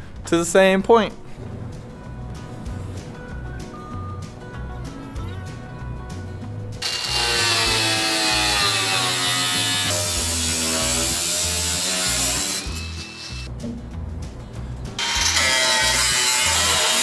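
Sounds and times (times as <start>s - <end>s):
background music with beat: 1.3s - 6.8s, 13.4s - 15.2s
angle grinder cutting metal: 6.8s - 13.5s, 15.0s - 17.0s.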